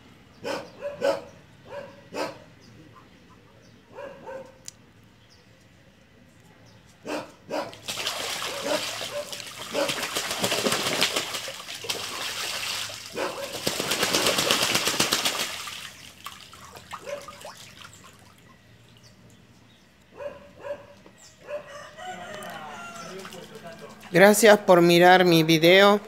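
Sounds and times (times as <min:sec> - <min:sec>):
ducks splashing in water: 0:07.7 - 0:19.0, 0:22.8 - 0:24.1.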